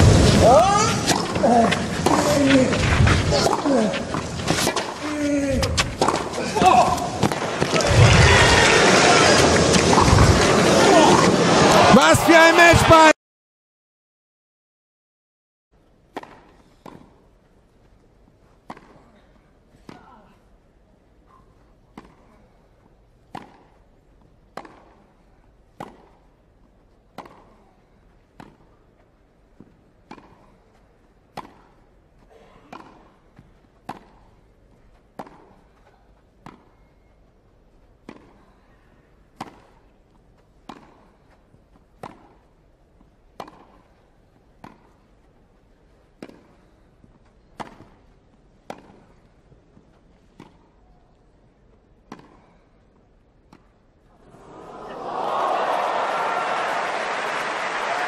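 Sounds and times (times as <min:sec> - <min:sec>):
tennis ball hit by rackets: 0:03.4 - 0:05.0, 0:05.6 - 0:08.3, 0:16.1 - 0:17.2, 0:18.6 - 0:19.0, 0:21.9 - 0:22.2, 0:23.3 - 0:23.7, 0:24.5 - 0:25.0, 0:25.8 - 0:26.2, 0:27.1 - 0:27.6, 0:28.4 - 0:28.7, 0:29.6 - 0:30.5, 0:31.3 - 0:31.7, 0:32.7 - 0:34.3, 0:35.2 - 0:35.6, 0:38.0 - 0:38.4, 0:39.4 - 0:39.8, 0:40.7 - 0:41.1, 0:42.0 - 0:42.4, 0:43.4 - 0:43.9, 0:44.6 - 0:44.9, 0:46.2 - 0:46.6, 0:47.6 - 0:48.0, 0:48.7 - 0:49.2, 0:50.3 - 0:50.6, 0:52.0 - 0:52.5.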